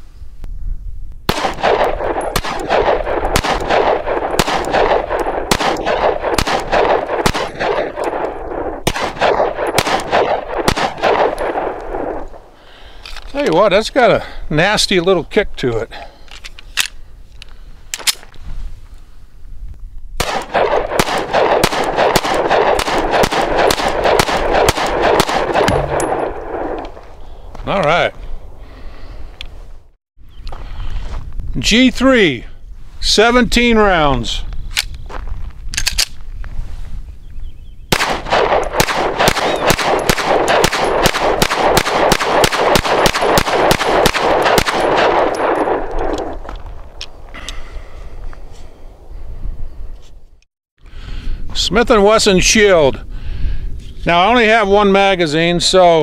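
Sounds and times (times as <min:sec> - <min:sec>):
pistol shots echoing: 0:01.3 - 0:12.5, 0:20.2 - 0:27.0, 0:37.9 - 0:46.4
pistol handling clicks: 0:16.3 - 0:18.2, 0:35.7 - 0:36.2.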